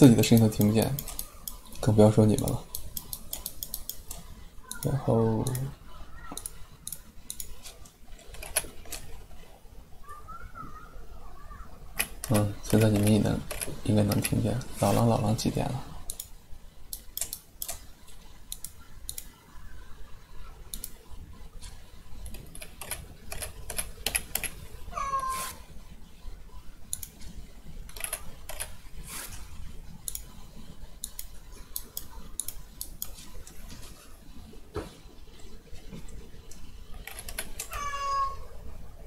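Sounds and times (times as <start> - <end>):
keyboard and mouse clicks: 0.2 - 9.2, 12.0 - 14.4, 16.1 - 19.4, 20.7 - 21.0, 22.2 - 24.6, 26.9 - 27.3, 27.9 - 28.8, 30.0 - 33.7, 36.1 - 37.8
child's drawn-out high call: 10.0 - 11.8
children's voices playing outdoors: 10.0 - 11.8.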